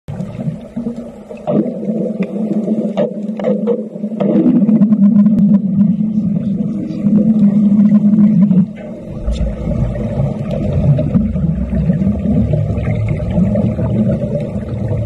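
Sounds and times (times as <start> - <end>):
crackling clicks: 8.4 - 11.4.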